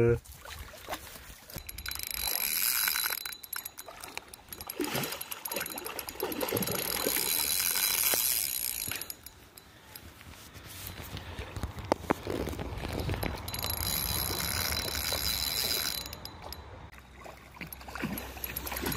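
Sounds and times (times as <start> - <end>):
fishing reel ratcheting whir: 1.6 - 9.7, 12.3 - 16.6, 17.6 - 18.9.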